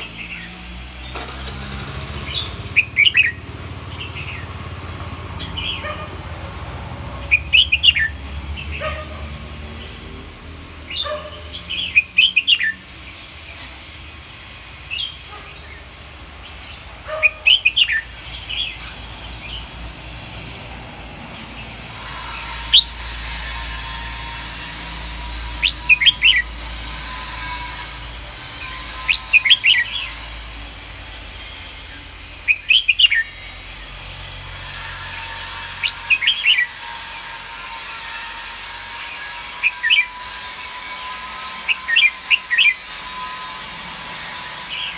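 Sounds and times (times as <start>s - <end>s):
bird singing high notes: 7.2s - 8.2s, 10.9s - 12.9s, 22.0s - 28.0s.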